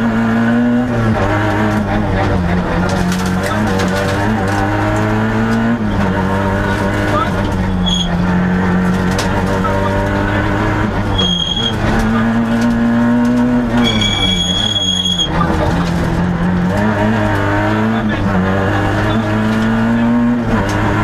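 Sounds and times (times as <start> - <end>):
car engine revving hard: 0.0 - 21.0
brief high squeals: 11.2 - 11.8, 13.8 - 15.3.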